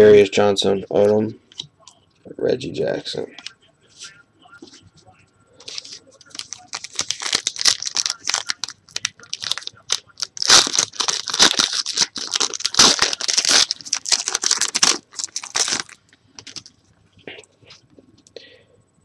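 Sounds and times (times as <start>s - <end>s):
foil wrapper tearing and crumpling: 5.7s - 16.7s.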